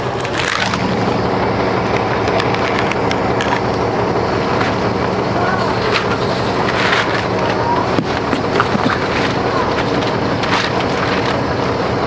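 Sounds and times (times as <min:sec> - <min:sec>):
bus diesel engine idling: 0:00.0 - 0:12.0.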